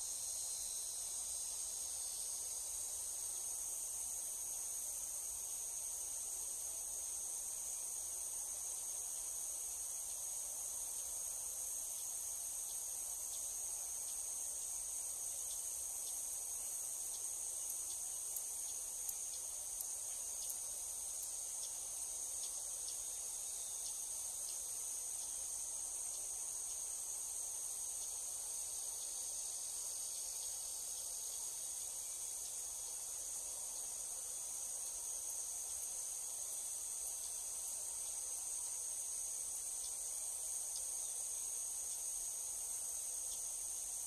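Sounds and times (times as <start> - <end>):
insects trilling: 0.0 - 44.0
faint ticks: 17.0 - 25.4, 26.0 - 26.9, 40.7 - 41.0.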